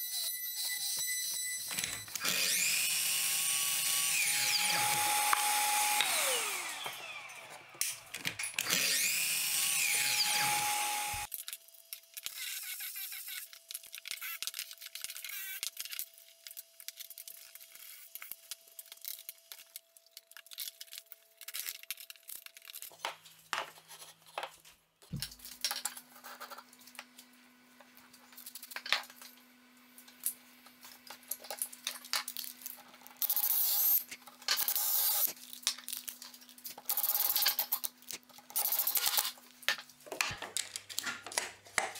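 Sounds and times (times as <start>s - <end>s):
cordless drill driving screws: 1.7s - 7.7s, 8.6s - 11.3s
miter saw cutting wood: 2.1s - 11.3s
clicks and taps: 39.7s - 41.9s.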